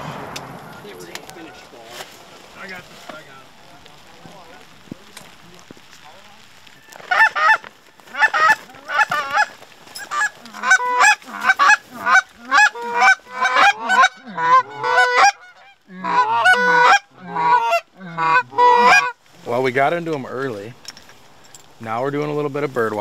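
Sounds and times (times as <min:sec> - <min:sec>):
goose honking: 0:06.8 - 0:19.2.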